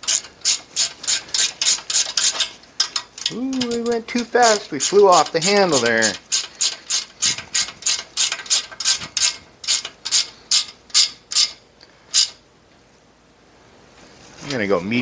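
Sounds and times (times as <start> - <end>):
ratcheting wrench clicking: 0.0 - 12.4.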